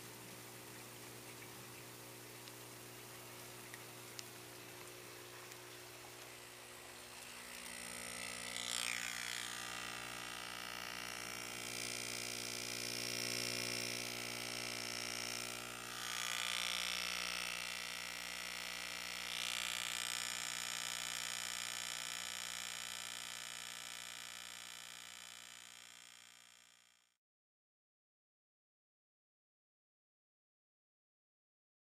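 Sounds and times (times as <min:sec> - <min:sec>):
air pump electric buzz: 0:03.9 - 0:27.2.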